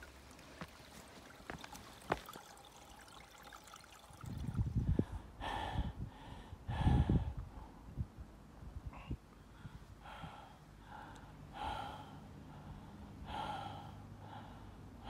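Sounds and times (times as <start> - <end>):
water trickling among stones: 0.0 - 4.8
wind rumbling on microphone: 4.1 - 10.4.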